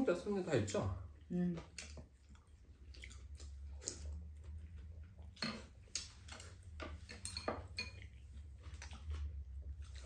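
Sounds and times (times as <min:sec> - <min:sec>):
chopsticks clicking on dishes: 0:05.3 - 0:08.2.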